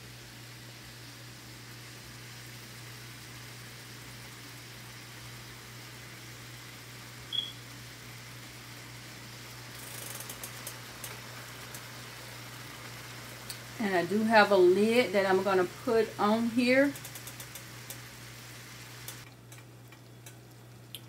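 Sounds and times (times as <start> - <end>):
pot simmering with low hum: 0.0 - 21.0
short high chirp: 7.3 - 7.6
light crackling and spattering: 9.5 - 14.2, 16.2 - 21.0.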